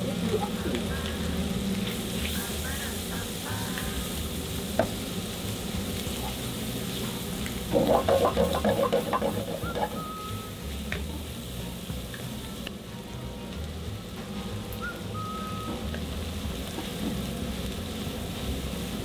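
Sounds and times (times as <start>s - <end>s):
bacon sizzling in oil: 0.0s - 19.0s
spatula scraping and stirring: 7.7s - 10.0s.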